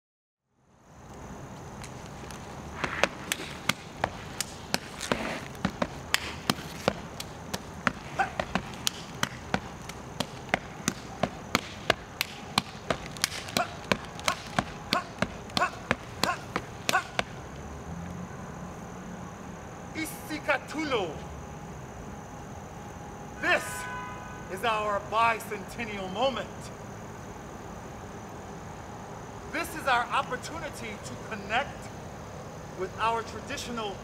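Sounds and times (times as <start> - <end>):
boots stamping on stone: 1.8 - 17.4
hand slaps on rubber boots: 2.8 - 17.3.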